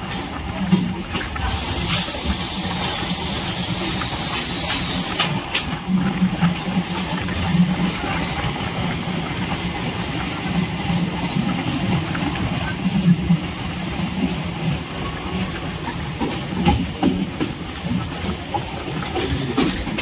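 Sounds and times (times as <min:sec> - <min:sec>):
train wheels rumbling on rails: 0:00.0 - 0:20.0
loud hiss: 0:01.5 - 0:05.3.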